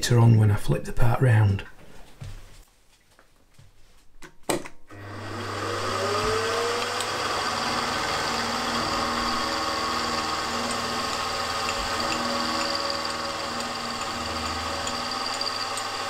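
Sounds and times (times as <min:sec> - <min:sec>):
end mill cutting steel: 0:05.0 - 0:16.0
milling machine motor whine: 0:05.0 - 0:16.0.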